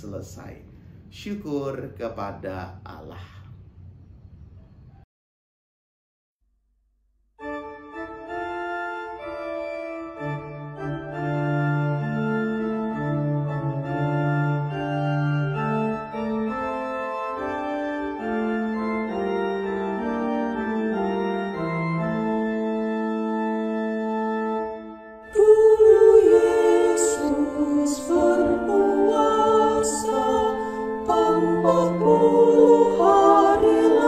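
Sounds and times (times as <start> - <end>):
organ playing hymn chords: 7.4 - 34.0.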